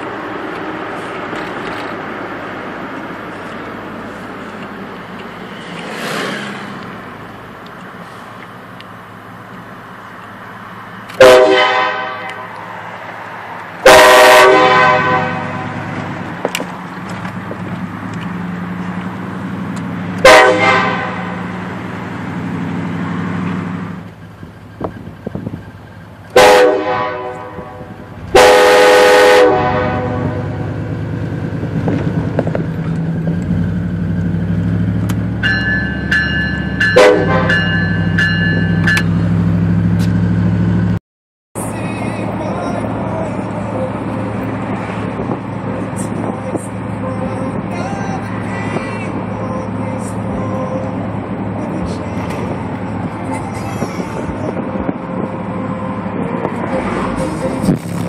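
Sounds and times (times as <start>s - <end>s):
vehicle engine running: 0.0s - 41.0s, 41.6s - 58.0s
air horn chord blasts: 11.2s - 12.6s, 13.8s - 15.9s, 20.2s - 21.5s, 26.3s - 30.7s, 35.4s - 39.0s.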